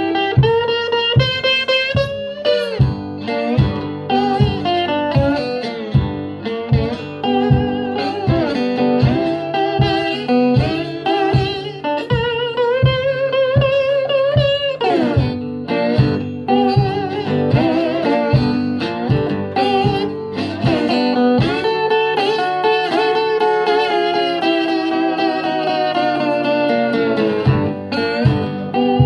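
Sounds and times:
steady low beat: 0.0s - 22.1s
resonator guitar slide blues: 0.0s - 29.0s.

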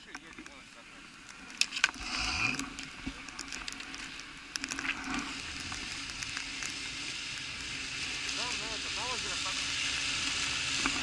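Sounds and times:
small clicks and knocks: 0.0s - 0.6s, 1.2s - 6.8s
steady hiss: 0.0s - 11.0s
snowmobile engine idling: 7.2s - 11.0s.

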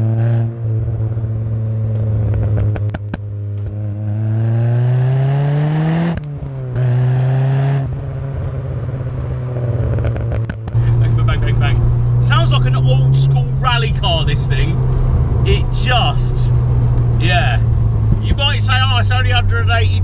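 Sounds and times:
exhaust pops and crackles: 0.0s - 4.5s, 6.0s - 20.0s
car engine exhaust revving: 0.0s - 20.0s.

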